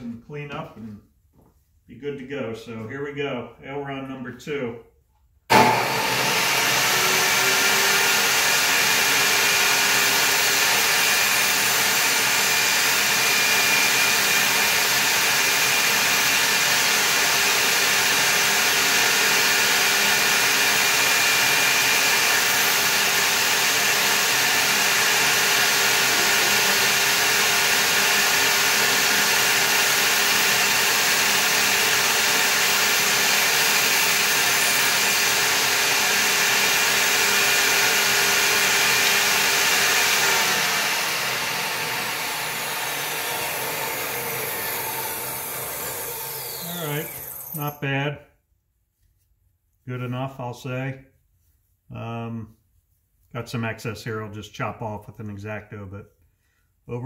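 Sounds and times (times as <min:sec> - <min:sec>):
table saw cutting wood: 0:05.5 - 0:47.8.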